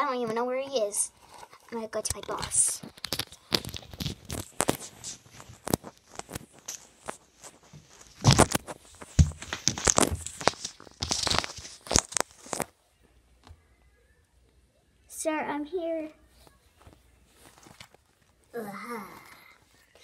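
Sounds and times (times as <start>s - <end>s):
phone microphone handling noise: 2.1s - 12.7s.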